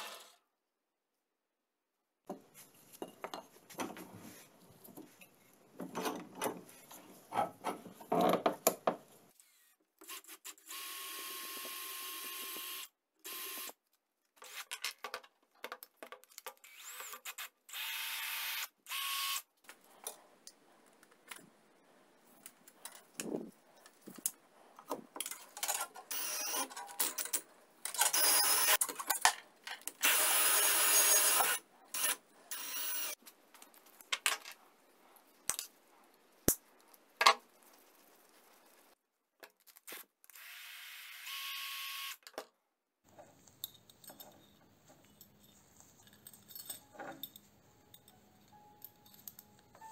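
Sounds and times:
cordless drill whining: 16.6s - 19.4s, 26.1s - 26.7s, 30.0s - 33.2s.

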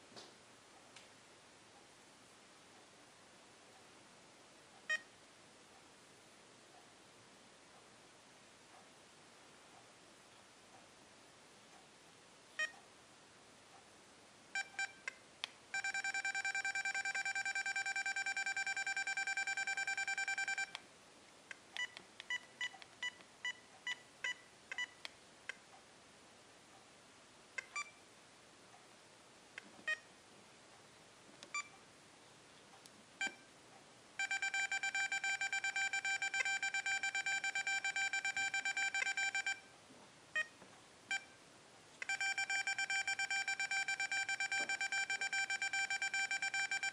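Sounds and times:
steady held beep tone: 14.6s - 15.0s, 15.7s - 20.8s, 21.8s - 25.0s, 33.2s - 33.5s, 34.2s - 39.7s, 40.4s - 41.4s, 42.0s - 46.9s
remote control short beeps: 15.8s - 20.8s, 34.2s - 39.7s, 42.0s - 46.9s.

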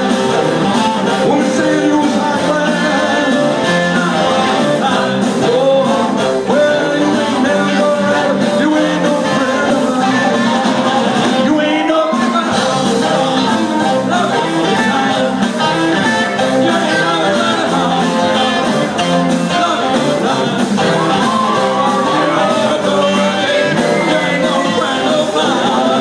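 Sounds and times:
drums: 0.0s - 26.0s
keyboard: 0.0s - 26.0s
man singing: 0.0s - 26.0s
saxophone: 0.0s - 26.0s.

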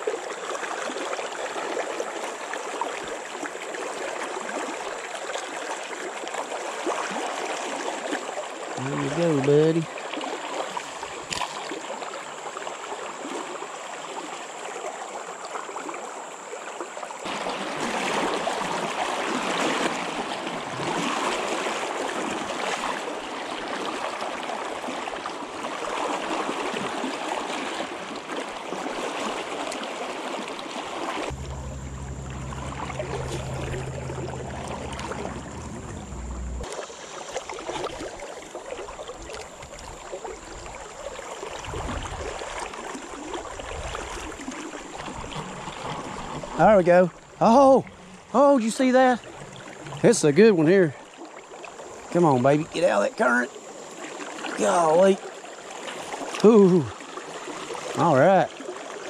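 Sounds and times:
river water rushing: 17.2s - 38.2s
low rumble: 31.3s - 36.7s.

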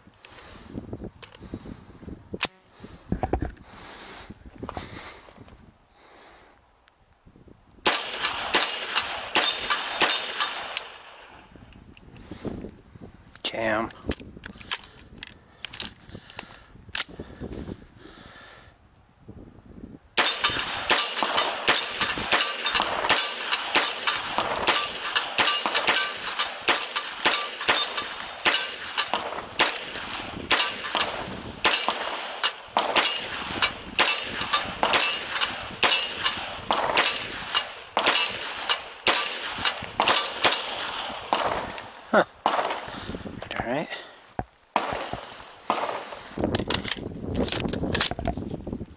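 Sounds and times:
pistol shots: 7.8s - 11.4s, 20.2s - 43.0s, 44.8s - 46.4s
steel targets clanging: 20.2s - 36.4s, 37.0s - 40.8s.

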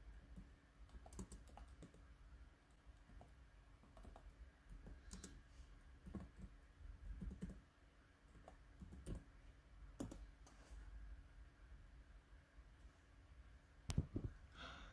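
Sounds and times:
laptop keyboard typing: 0.0s - 2.1s, 3.0s - 7.7s, 8.3s - 9.3s, 9.9s - 10.5s.

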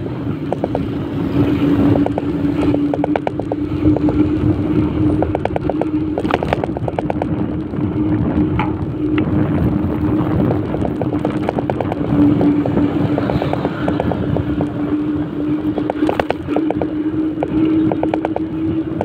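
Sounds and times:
motorbike engine hum: 0.0s - 19.0s
wind and road noise: 0.0s - 19.0s
rapid even ticking: 0.4s - 7.9s, 9.8s - 14.8s.

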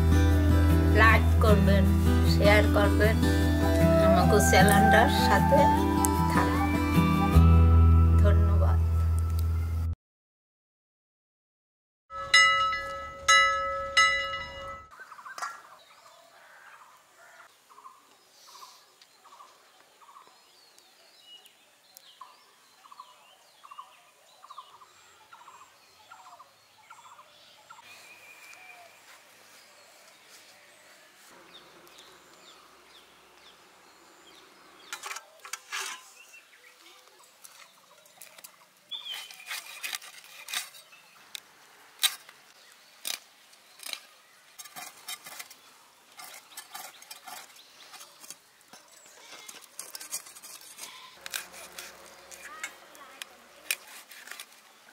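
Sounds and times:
birds calling: 14.4s - 41.4s.

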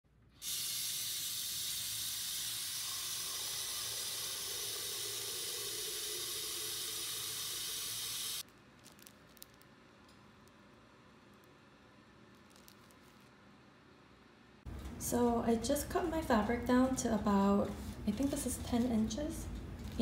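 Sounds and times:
tap water running into kettle: 0.4s - 8.4s
plastic wrapper crinkling: 8.4s - 10.7s, 12.2s - 13.4s, 19.8s - 20.0s.

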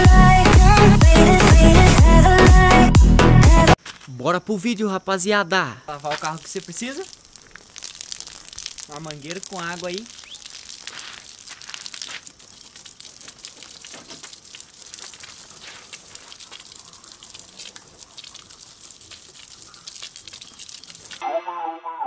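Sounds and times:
hose water splashing on car: 5.9s - 21.2s.

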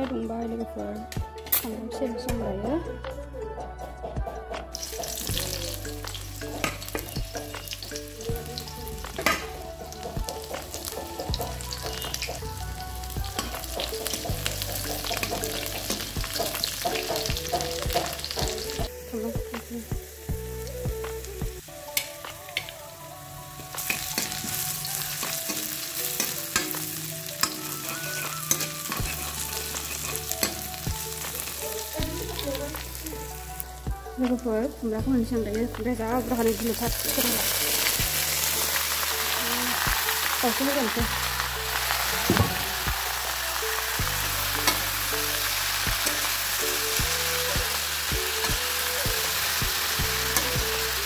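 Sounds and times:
onions sizzling in hot oil: 4.7s - 33.8s, 34.4s - 51.0s
metal spatula scraping pan: 27.4s - 30.8s.

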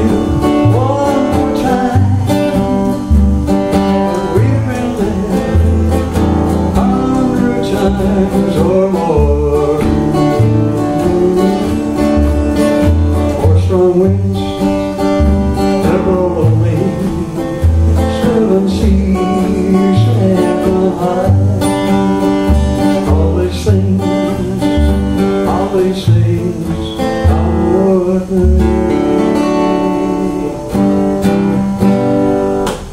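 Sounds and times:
pulsing low bass notes: 0.0s - 26.6s
acoustic guitar strumming: 0.0s - 32.9s
electric organ chords: 0.0s - 32.9s.

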